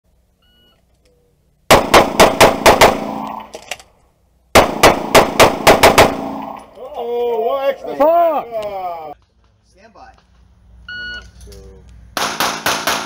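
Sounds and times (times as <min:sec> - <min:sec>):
pistol firing rapid shots: 0:01.7 - 0:03.2, 0:04.6 - 0:06.4, 0:12.2 - 0:13.0.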